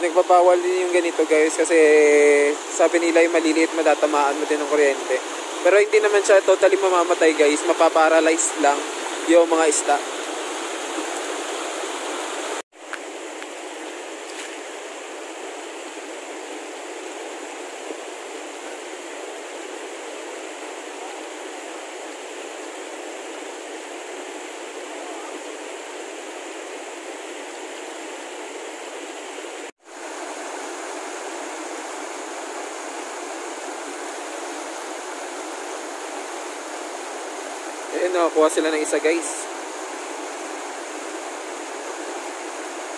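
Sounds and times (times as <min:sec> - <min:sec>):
river rushing over rocks: 0:00.0 - 0:42.9.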